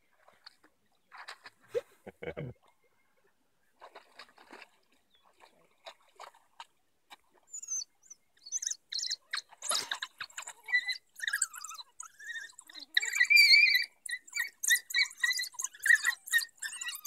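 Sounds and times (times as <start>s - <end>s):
wild dogs chirping calls: 7.5s - 17.0s.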